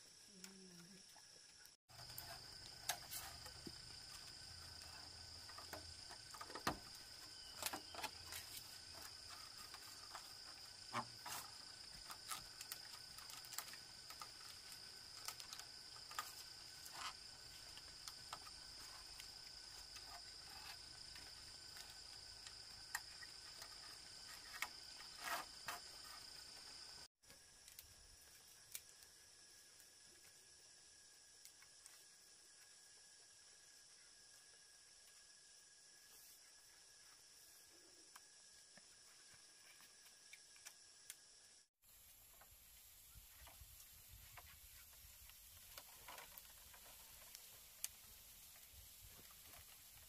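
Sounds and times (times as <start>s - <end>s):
insects droning: 0.0s - 50.0s
bamboo poles clicking and knocking: 1.6s - 26.6s, 43.3s - 50.0s.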